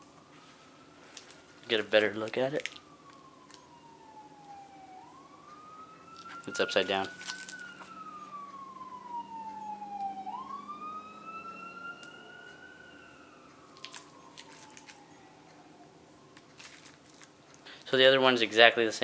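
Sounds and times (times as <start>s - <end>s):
siren wailing: 0.0s - 18.7s
packaging clicks: 1.1s - 3.7s, 13.7s - 15.6s, 16.4s - 17.6s.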